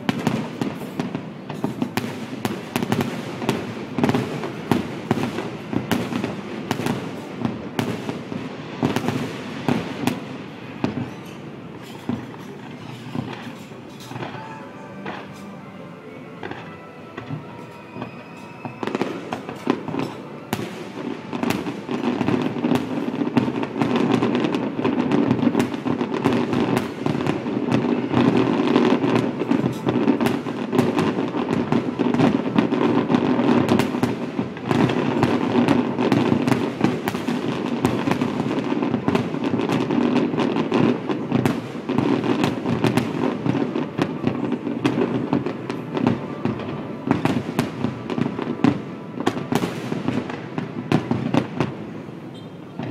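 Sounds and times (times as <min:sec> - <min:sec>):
fireworks shells bursting: 0:08.1 - 0:15.6.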